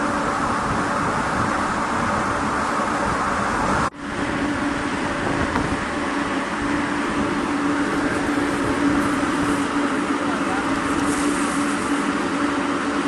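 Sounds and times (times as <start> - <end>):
dryer machine humming: 0.0 - 13.0.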